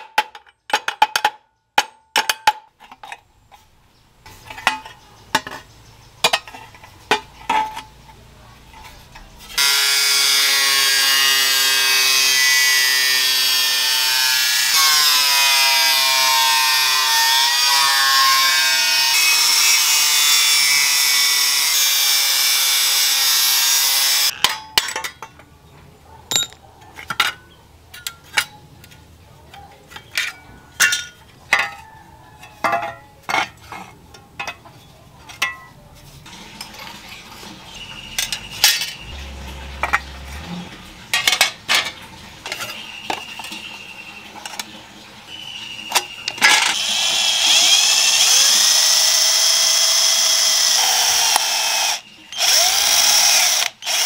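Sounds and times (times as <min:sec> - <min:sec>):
electric power tool whine: 0:09.6 - 0:24.3, 0:45.6 - 0:54.0
metal parts clinking: 0:26.3 - 0:29.0, 0:38.2 - 0:40.1.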